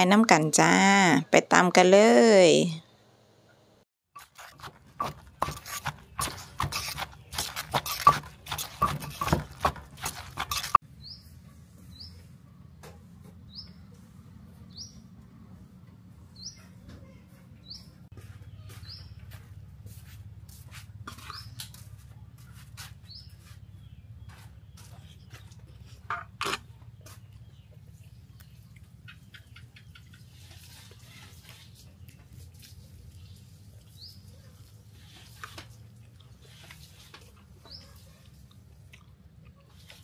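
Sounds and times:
spoon scraping in mortar: 0:04.2 - 0:10.8
wooden pestle knocking in mortar: 0:04.6 - 0:10.8
small bird chirping: 0:26.7 - 0:31.9.

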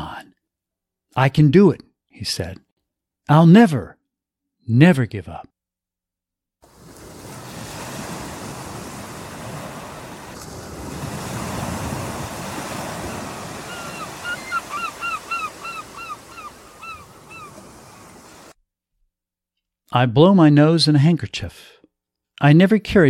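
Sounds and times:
waves washing on shore: 0:06.6 - 0:18.6
bird calling short hooked notes: 0:13.7 - 0:17.6.

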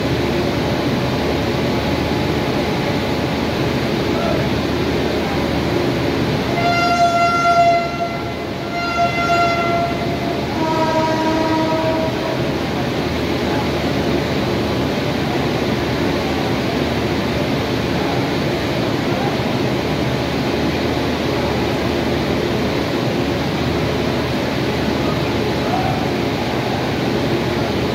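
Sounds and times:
train coaches rumbling past: 0:00.0 - 0:27.9
train horn blasts: 0:06.5 - 0:12.7.

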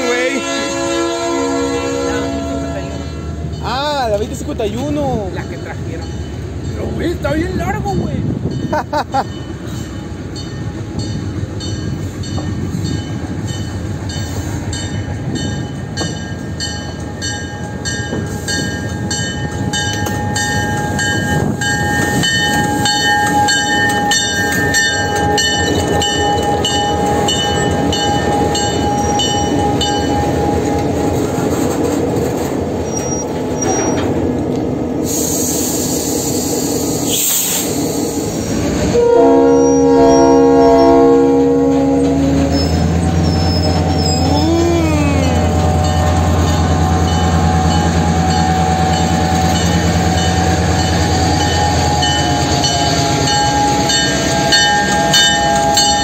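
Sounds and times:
locomotive bell ringing: 0:00.0 - 0:31.1, 0:39.0 - 0:56.0
diesel locomotive rumbling: 0:00.0 - 0:56.0
train wheels on rails: 0:00.0 - 0:56.0
loud hiss: 0:35.0 - 0:38.8.

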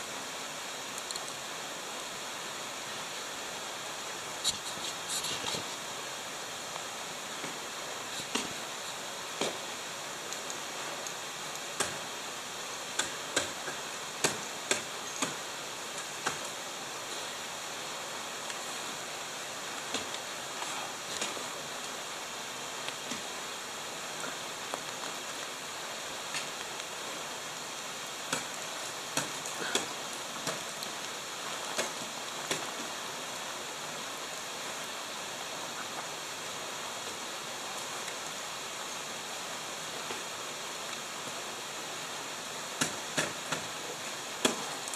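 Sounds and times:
steady hiss: 0:00.0 - 0:44.9
ice axes striking ice: 0:11.8 - 0:12.0.

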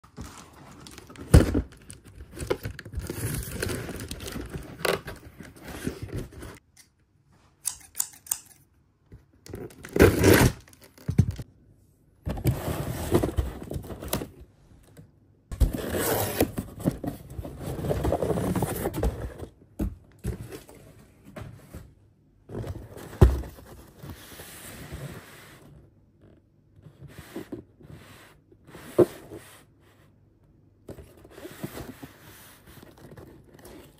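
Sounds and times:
cardboard box ripping and rustling: 0:02.4 - 0:06.2, 0:09.8 - 0:10.6.

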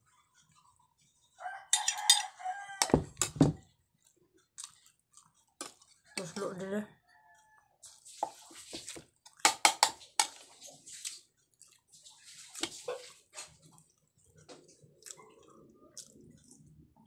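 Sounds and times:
person chewing: 0:03.9 - 0:06.2, 0:08.9 - 0:16.9.

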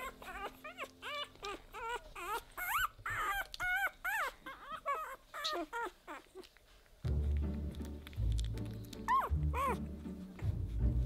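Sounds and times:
puppies whimpering: 0:00.0 - 0:06.8, 0:08.9 - 0:10.2.

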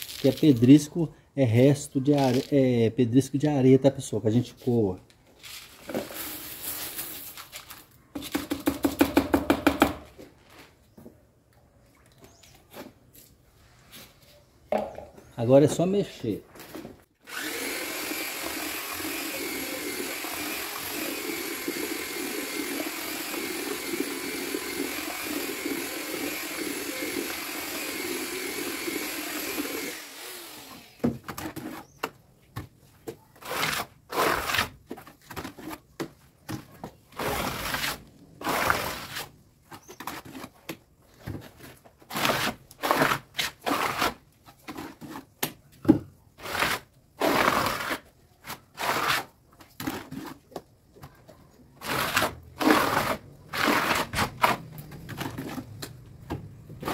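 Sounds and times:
tool scraping mortar: 0:05.6 - 0:10.0, 0:16.5 - 0:32.2, 0:33.1 - 0:45.6, 0:46.4 - 0:51.2, 0:51.8 - 0:56.9
electric drill mixing mortar: 0:17.2 - 0:32.0, 0:37.2 - 0:39.3, 0:42.0 - 0:44.2, 0:46.4 - 0:48.1, 0:48.7 - 0:50.2, 0:51.8 - 0:56.9.

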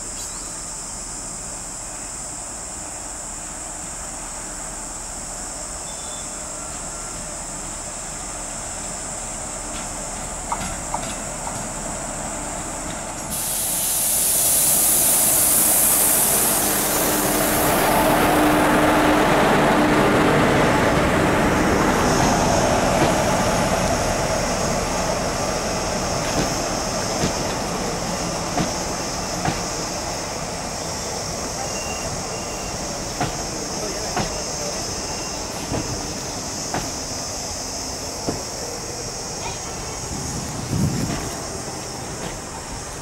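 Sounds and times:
loud hissing rush: 0:07.3 - 0:43.0
train wheel clicks over rail joints: 0:09.7 - 0:11.8, 0:26.2 - 0:27.7, 0:28.5 - 0:29.8, 0:33.1 - 0:34.8, 0:35.5 - 0:37.1, 0:42.1 - 0:42.5.

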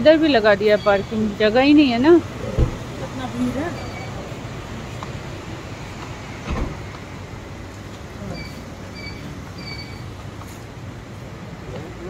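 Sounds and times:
thump: 0:02.6 - 0:02.8, 0:06.4 - 0:06.8.

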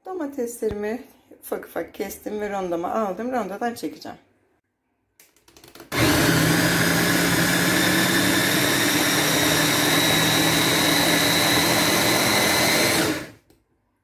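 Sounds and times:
electric chopper motor whining: 0:05.9 - 0:13.4.

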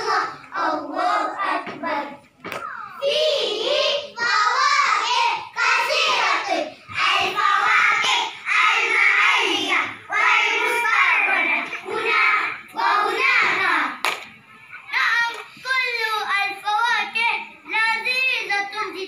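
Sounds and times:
children reciting in unison: 0:00.0 - 0:14.0.

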